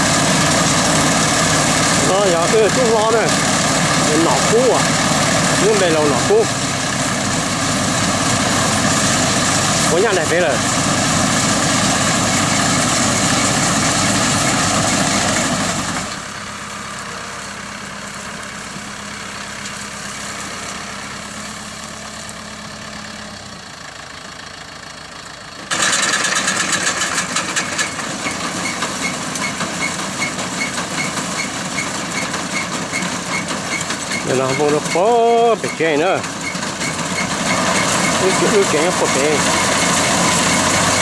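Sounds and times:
tractor engine running: 0:00.0 - 0:41.0
combine machinery clattering: 0:25.6 - 0:41.0.

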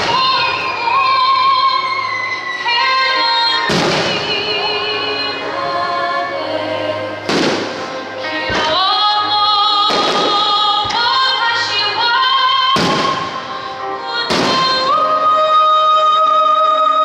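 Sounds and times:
music with sung melody: 0:00.0 - 0:17.0
fireworks bursting: 0:03.6 - 0:04.4, 0:07.3 - 0:07.8, 0:12.8 - 0:13.5.

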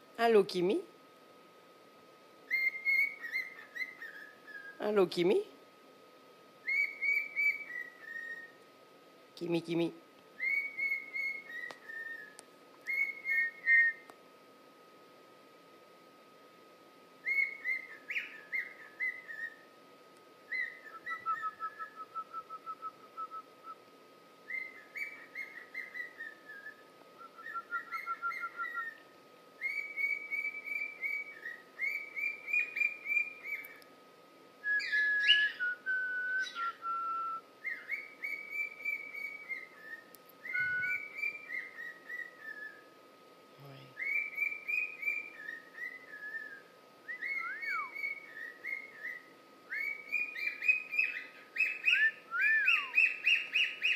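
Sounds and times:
cockatiel whistling and chattering: 0:02.5 - 0:04.8, 0:06.6 - 0:08.6, 0:10.4 - 0:14.1, 0:17.2 - 0:19.6, 0:20.5 - 0:23.4, 0:24.4 - 0:29.0, 0:29.6 - 0:33.8, 0:34.7 - 0:42.8, 0:44.0 - 0:53.9.

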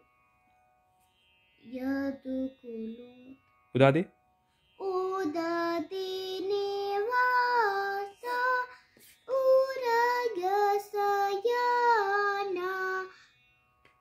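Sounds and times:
girl singing unaccompanied: 0:01.6 - 0:03.4, 0:04.8 - 0:13.3.

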